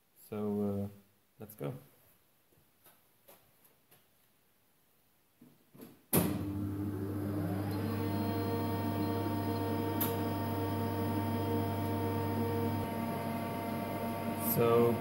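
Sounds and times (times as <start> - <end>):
machine electrical hum: 6.4 - 15.0
motor whine rising: 6.6 - 15.0.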